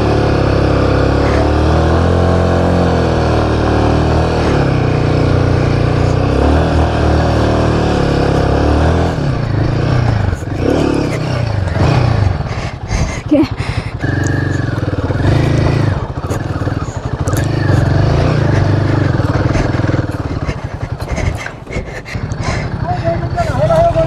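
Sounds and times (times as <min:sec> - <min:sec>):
motorcycle engine running: 0:00.0 - 0:24.0.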